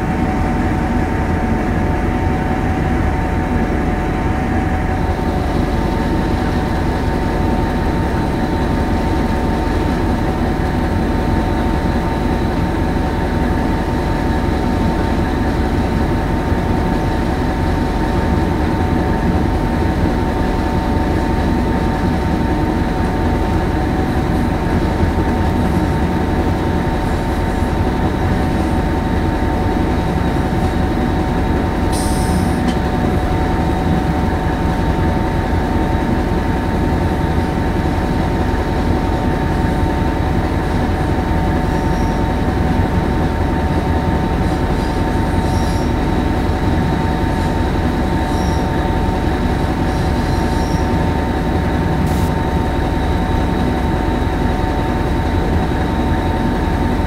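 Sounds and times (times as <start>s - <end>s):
train engine and wheel noise: 0.0s - 57.0s
high squeal: 50.0s - 51.0s.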